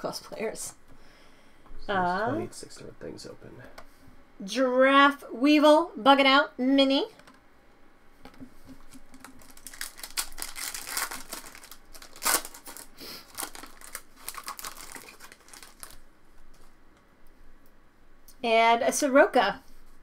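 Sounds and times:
foil wrapper crinkling and tearing: 8.8 - 16.1.

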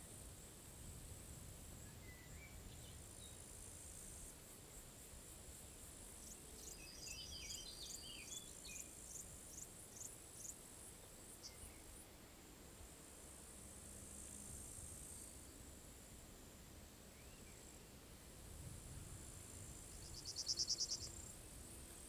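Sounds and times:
insects trilling: 2.0 - 12.0, 19.2 - 22.0.

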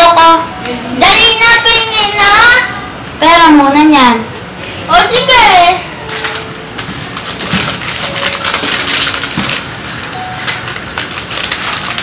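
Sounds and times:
plastic snack packet crinkling: 7.1 - 12.0.

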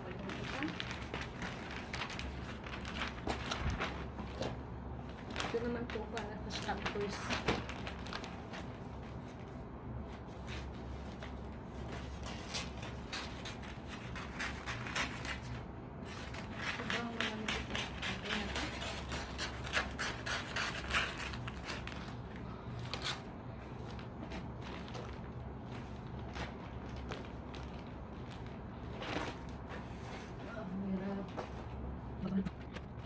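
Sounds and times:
wrapping paper rustling: 0.0 - 33.0
scissors cutting paper: 12.2 - 22.2.

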